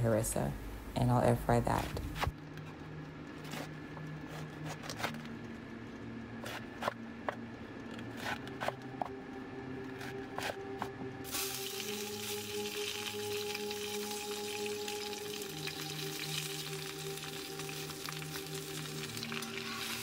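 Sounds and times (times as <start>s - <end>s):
knife slicing cabbage on board: 3.4s - 5.3s, 6.4s - 7.4s, 8.0s - 9.2s, 9.9s - 10.9s.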